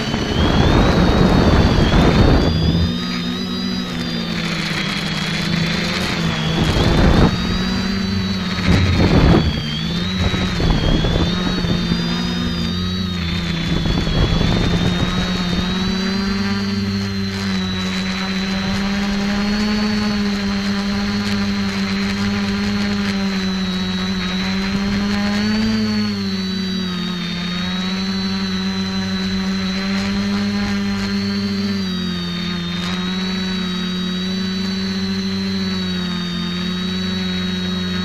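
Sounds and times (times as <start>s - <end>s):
wind buffeting microphone: 0.0s - 3.3s, 4.4s - 16.8s
drone propellers whirring: 0.0s - 38.0s.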